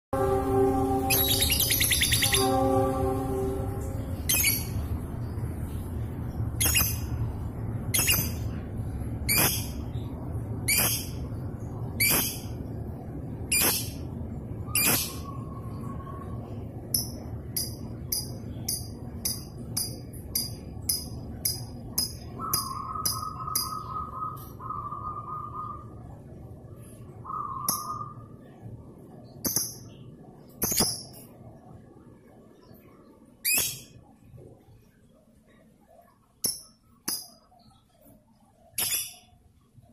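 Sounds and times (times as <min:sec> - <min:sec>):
low hum: 0:00.1 - 0:39.9
buzzy bird trills: 0:00.2 - 0:04.9, 0:06.6 - 0:07.2, 0:07.9 - 0:08.6, 0:09.2 - 0:11.2, 0:12.0 - 0:12.6, 0:13.5 - 0:14.0, 0:14.7 - 0:26.1, 0:27.2 - 0:28.3, 0:38.6 - 0:39.4
bird shrieking and chirping: 0:14.7 - 0:15.5.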